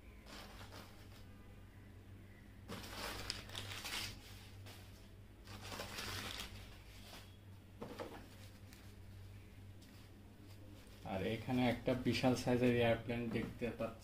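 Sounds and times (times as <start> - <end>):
paper and cardboard rustling: 0.3 - 1.3, 2.7 - 9.2.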